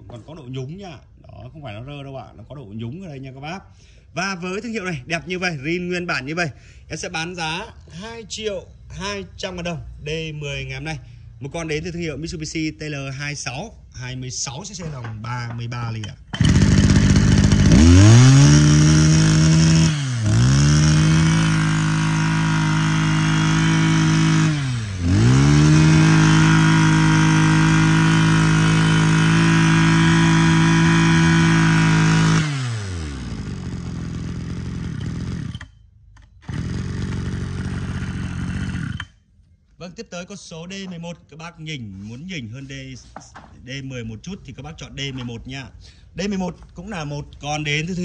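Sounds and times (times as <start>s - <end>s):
brush-cutter engine revving: 16.3s - 35.8s, 36.4s - 39.2s.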